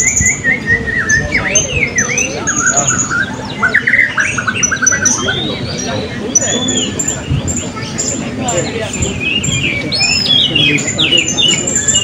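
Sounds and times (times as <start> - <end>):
fast rattling bird trill: 0.0 - 12.0.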